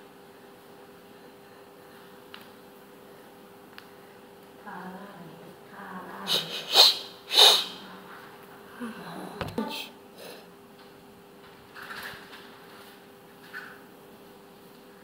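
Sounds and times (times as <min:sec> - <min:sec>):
hissing breaths: 0:06.3 - 0:07.9.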